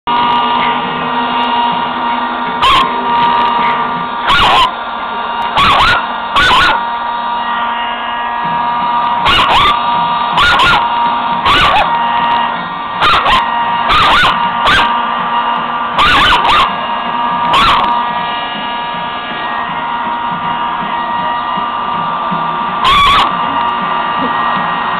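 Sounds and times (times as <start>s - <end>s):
blow dryer whine: 0.0s - 24.9s
dog barking: 2.6s - 2.9s, 3.6s - 4.8s, 5.6s - 6.8s, 9.2s - 9.8s, 10.4s - 12.0s, 13.0s - 15.0s, 16.0s - 16.8s, 17.5s - 18.0s, 22.8s - 23.3s.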